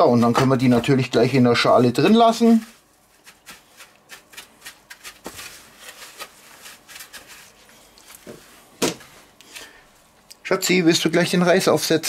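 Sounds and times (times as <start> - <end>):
breadcrumbs crunching and rustling: 1.8 - 8.7.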